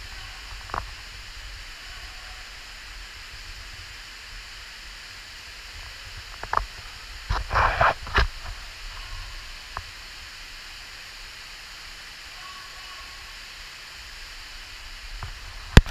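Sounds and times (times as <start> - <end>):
waterfall rushing: 0.0 - 15.9.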